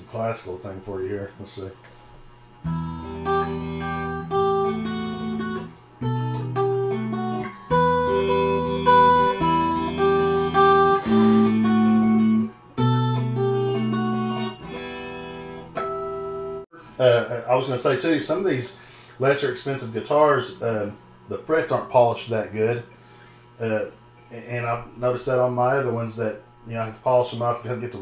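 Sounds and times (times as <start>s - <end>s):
electric guitar classical piece: 2.6s - 16.9s
brief scrape: 10.9s - 11.6s.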